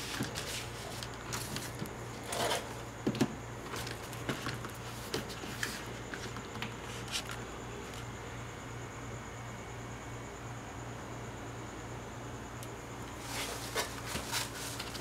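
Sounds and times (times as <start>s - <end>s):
plastic packets rustling and crinkling: 0.0s - 7.4s, 13.2s - 15.0s.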